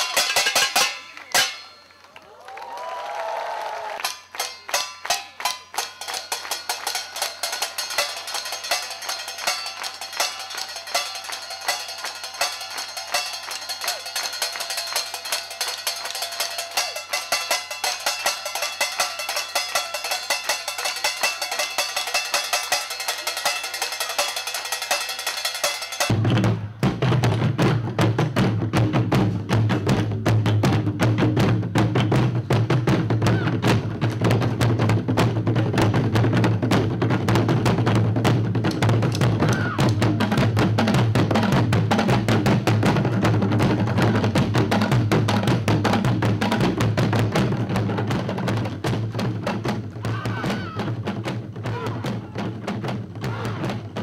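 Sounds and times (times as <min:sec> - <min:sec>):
drumsticks clanging metal pots: 0:00.0 - 0:01.8, 0:04.0 - 0:26.1
deep beats on large drums: 0:26.0 - 0:54.0.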